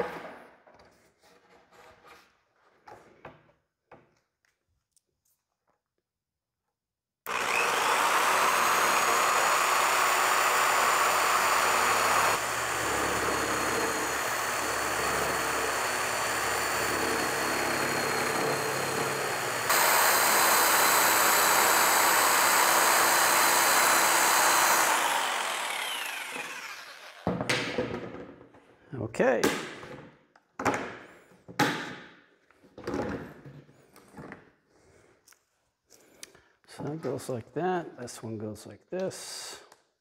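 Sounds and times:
jigsaw cutting plastic: 7.3s - 27.5s.

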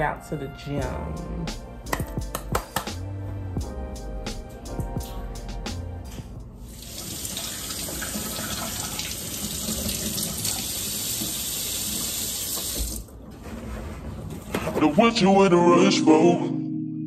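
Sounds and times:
faucet running into a steel sink: 6.7s - 13.0s
fruit being rinsed: 6.8s - 13.1s.

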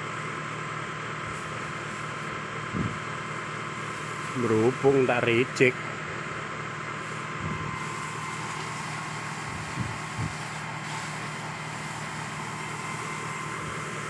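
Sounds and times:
engine idling: 0.0s - 14.0s.

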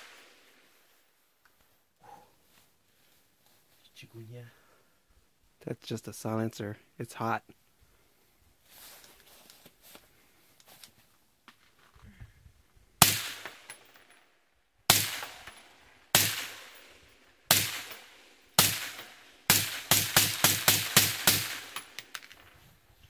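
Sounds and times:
suppressed rifle shots: 13.0s - 14.1s, 14.9s - 16.9s, 17.5s - 22.2s.

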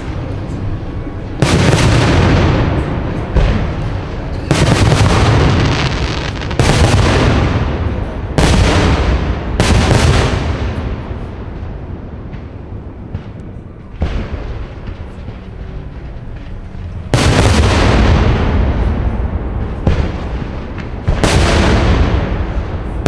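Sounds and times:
firework booms with echo: 1.3s - 15.7s, 17.1s - 23.0s.

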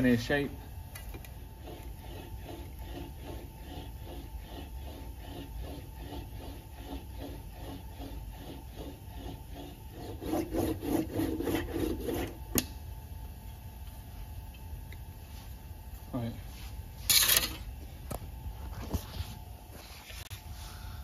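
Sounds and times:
metal sheet rubbing through wheel: 1.5s - 12.4s.

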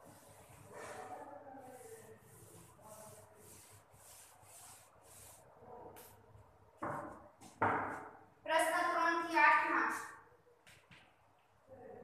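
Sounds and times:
eraser wiping a chalkboard: 0.0s - 6.2s.

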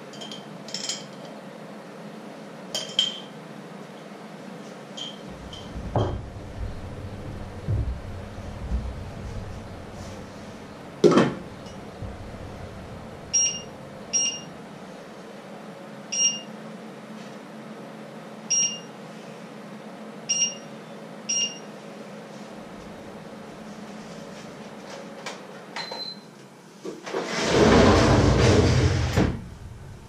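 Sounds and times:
short electronic beeps: 13.4s - 14.5s, 16.2s - 16.5s.

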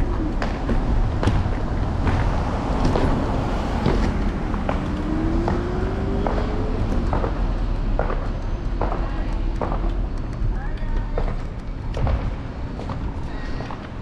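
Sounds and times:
scooter rattling over bumps: 0.0s - 9.0s
wind and road noise rumble: 0.0s - 14.0s.

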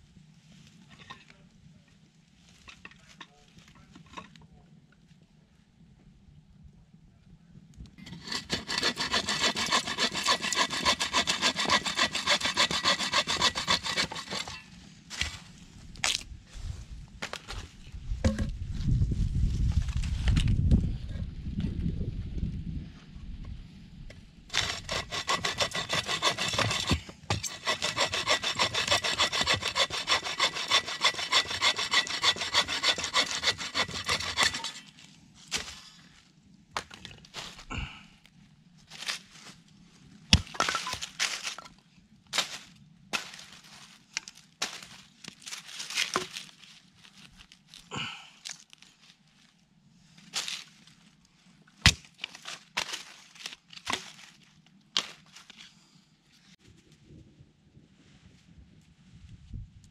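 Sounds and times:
hand saw cutting branch: 8.1s - 14.6s, 24.5s - 34.9s.

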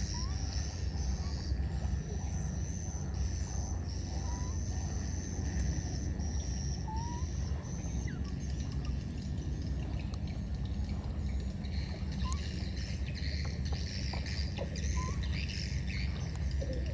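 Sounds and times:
insects buzzing: 0.0s - 16.9s
steady low rumble: 0.0s - 16.9s
faint rising squeaks: 11.7s - 16.9s.

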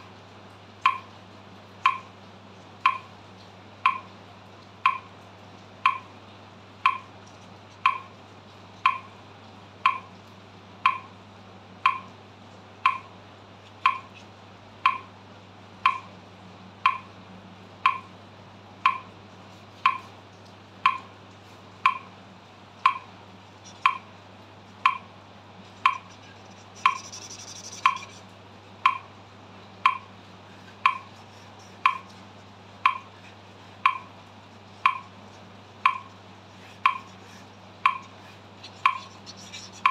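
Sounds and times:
metronome ticking: 0.8s - 1.1s, 1.8s - 2.1s, 2.8s - 3.2s, 3.8s - 4.1s, 4.8s - 5.2s, 5.8s - 6.2s, 6.8s - 7.1s, 7.8s - 8.2s, 8.8s - 9.2s, 9.8s - 10.2s, 10.8s - 11.2s, 11.8s - 12.2s, 12.8s - 13.2s, 13.8s - 14.2s, 14.8s - 15.1s, 15.8s - 16.1s, 16.8s - 17.1s, 17.8s - 18.1s, 18.8s - 19.2s, 19.8s - 20.1s, 20.8s - 21.2s, 21.8s - 22.1s, 22.8s - 24.2s, 24.8s - 25.2s, 25.8s - 28.2s, 28.8s - 29.2s, 29.8s - 30.2s, 30.8s - 39.9s.

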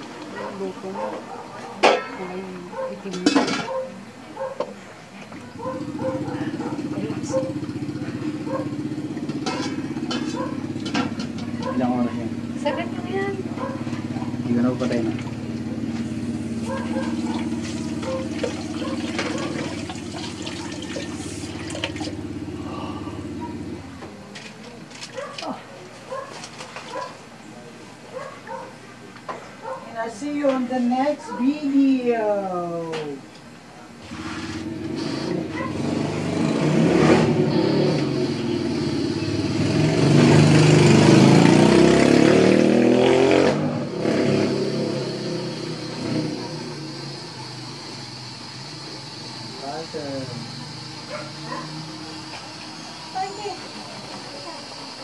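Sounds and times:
vehicle engine running: 5.4s - 24.3s, 34.0s - 55.0s
soup boiling in a pot: 16.1s - 22.6s.

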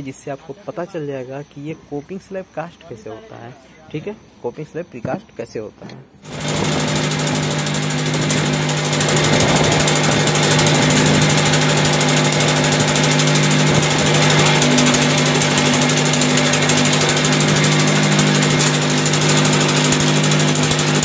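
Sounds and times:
vibrating table motor humming: 6.2s - 21.0s.

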